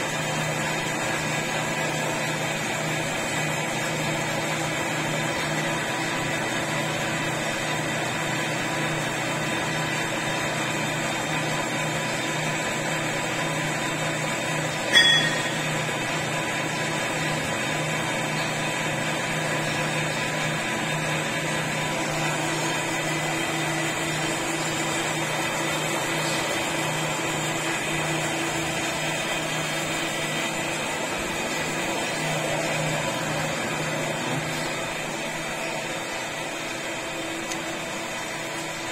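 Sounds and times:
lathe motor hum: 0.1 - 38.9
sharp metallic clank: 14.9 - 15.9.

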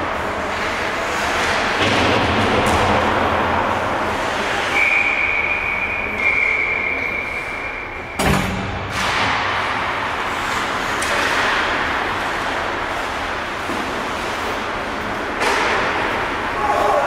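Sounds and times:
skates and sticks on ice: 0.0 - 8.0, 8.9 - 17.0
bang against boards and glass: 8.2 - 9.8.

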